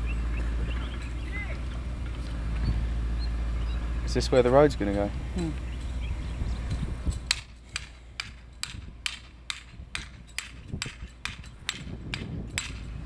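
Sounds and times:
hammer striking stake: 0:07.2 - 0:12.9.

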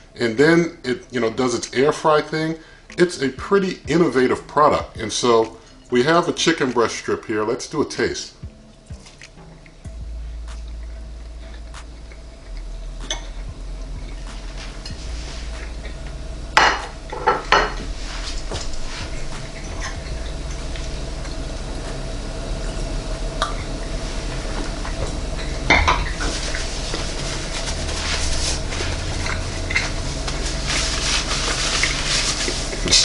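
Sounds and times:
oven cooling fan humming: 0:00.0 - 0:33.0.

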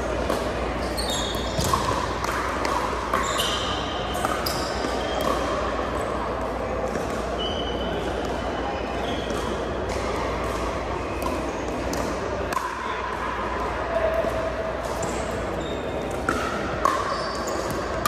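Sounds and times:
sneakers squeaking on hardwood: 0:00.8 - 0:01.8, 0:03.2 - 0:05.3.

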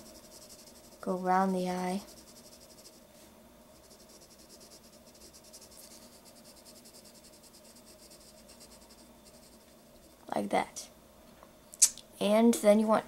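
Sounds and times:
pencil scratching on paper: 0:00.0 - 0:03.0, 0:03.8 - 0:10.1.

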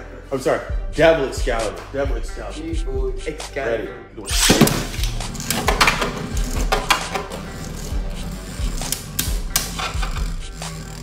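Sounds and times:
spinning tops clacking: 0:04.3 - 0:11.0
spinning tops launched with rasp: 0:04.3 - 0:11.0
spinning tops whirring: 0:04.3 - 0:11.0.

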